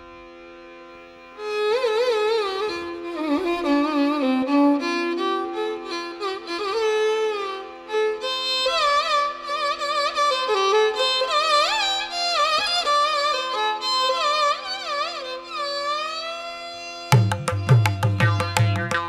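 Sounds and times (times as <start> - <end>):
violin playing gliding melody: 0.9 - 19.0.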